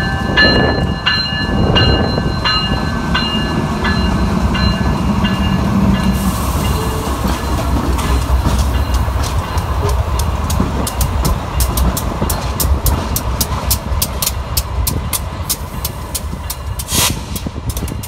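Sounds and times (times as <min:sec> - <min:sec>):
bell ringing: 0:00.0 - 0:10.0
train rumbling past: 0:00.0 - 0:18.0.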